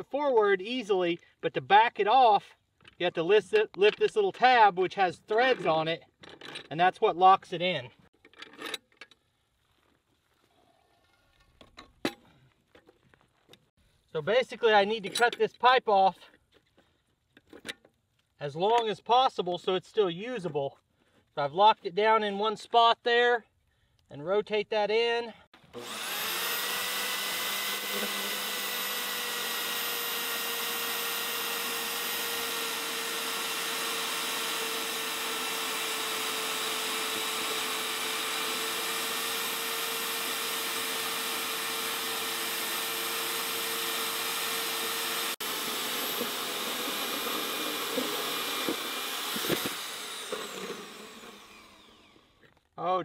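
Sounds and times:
bandsaw cutting steel pipe: 0:25.6 - 0:52.3.

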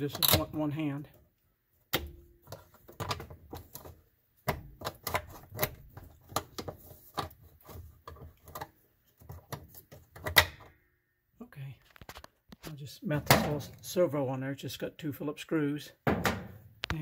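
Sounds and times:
plastic parts clicking and knocking: 0:00.0 - 0:00.6, 0:01.9 - 0:10.7.

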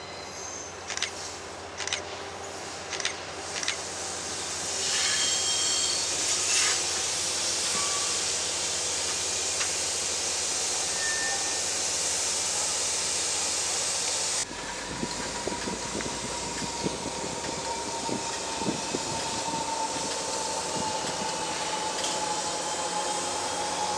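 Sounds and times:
high wheel squeal: 0:00.0 - 0:00.8, 0:04.7 - 0:07.0, 0:07.6 - 0:08.3, 0:10.7 - 0:11.8
train wheels rumbling on rail: 0:00.0 - 0:23.9.

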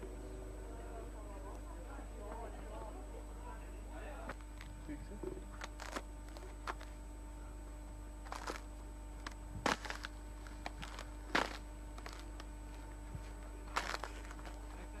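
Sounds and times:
steady background hum: 0:00.0 - 0:15.0
footsteps crunching in snow: 0:05.6 - 0:07.0, 0:08.2 - 0:08.7, 0:09.6 - 0:15.0.

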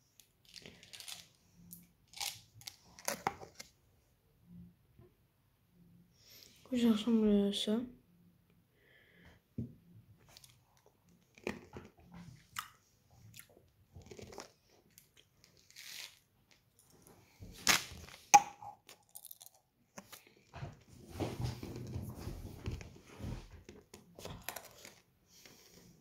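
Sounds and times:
candy crunching: 0:00.0 - 0:03.7, 0:13.3 - 0:16.8, 0:17.6 - 0:20.3, 0:24.2 - 0:25.0.

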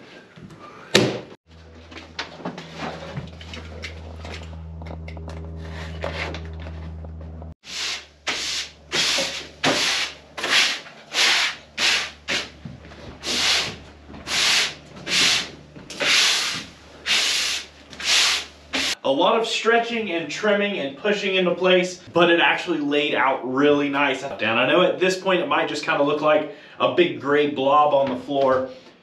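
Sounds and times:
steady low hum: 0:01.5 - 0:19.0
rubbing strokes: 0:07.6 - 0:12.6, 0:13.2 - 0:19.0.

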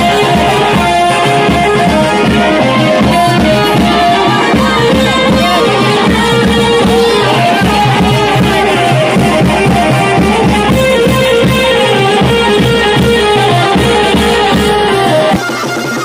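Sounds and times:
loud music with drum beat: 0:00.0 - 0:16.0.

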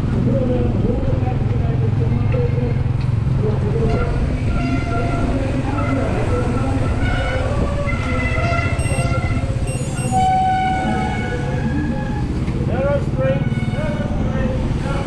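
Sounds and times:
wind on microphone: 0:03.6 - 0:10.3
short squeaks and tones: 0:07.9 - 0:11.2.

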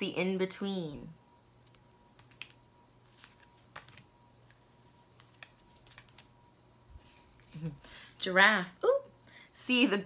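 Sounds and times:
cards clicking and rustling: 0:01.7 - 0:06.3.

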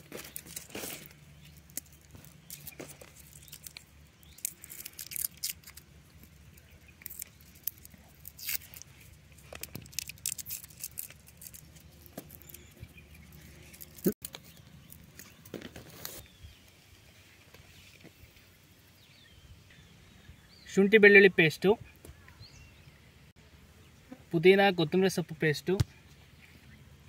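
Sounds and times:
garlic skins crackling: 0:00.0 - 0:16.3.

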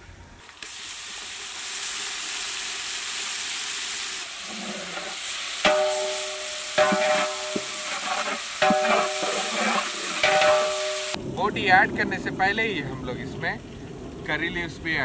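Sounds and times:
vegetables sizzling in hot oil: 0:00.6 - 0:11.2
metal spatula scraping a pot: 0:04.5 - 0:11.2.

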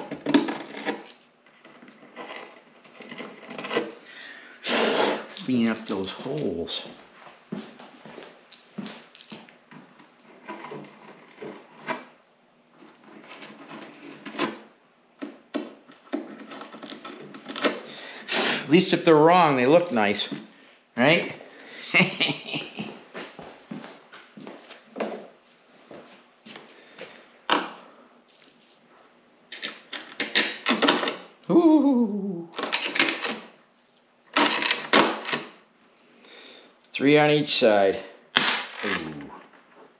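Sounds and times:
man humming: 0:31.5 - 0:32.6.

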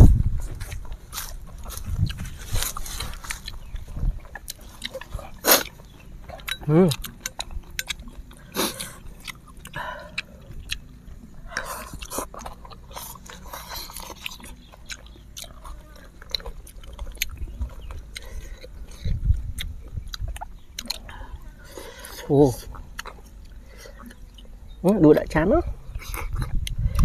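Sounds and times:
chewing and slurping noodles: 0:00.3 - 0:25.1, 0:25.8 - 0:27.0
sharp mouth clicks and smacks: 0:16.3 - 0:21.1, 0:26.0 - 0:27.0.

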